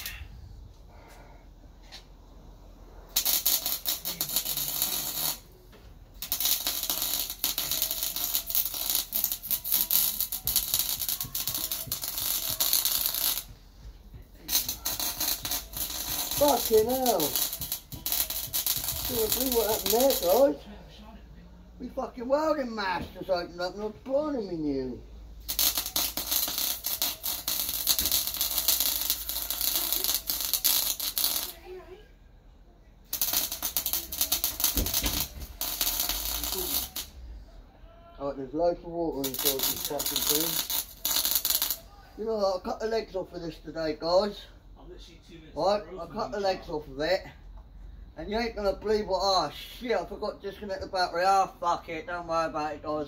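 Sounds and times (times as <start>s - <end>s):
welder arc crackling: 3.1s - 20.6s, 25.4s - 31.7s, 33.1s - 37.2s, 39.1s - 41.9s.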